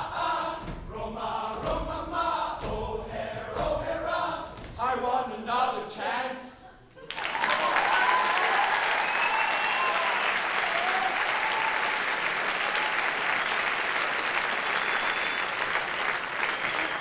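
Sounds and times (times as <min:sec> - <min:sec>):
audience applauding: 0:07.0 - 0:17.0
cheers and whoops: 0:07.1 - 0:13.6.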